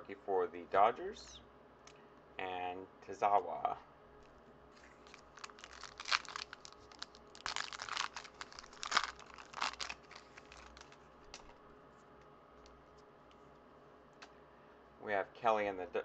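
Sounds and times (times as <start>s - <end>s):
plastic wrapper tearing and crinkling: 5.0s - 11.6s
faint clicks of cards handled: 10.4s - 14.4s.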